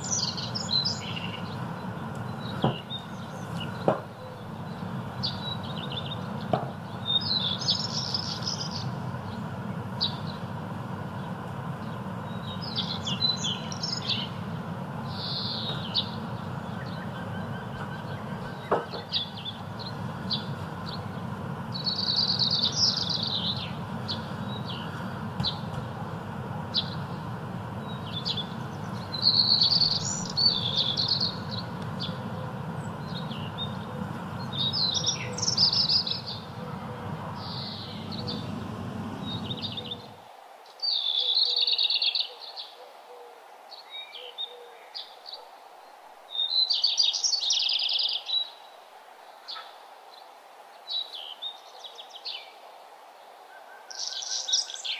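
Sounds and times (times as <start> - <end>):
bird chirps: 0.0 - 8.9, 11.8 - 14.4, 15.1 - 25.7, 27.8 - 40.2
bird singing: 0.0 - 10.5, 11.1 - 25.8, 26.7 - 42.9, 43.7 - 45.4, 46.3 - 48.8, 53.5 - 54.9
low steady rumble: 36.0 - 40.2.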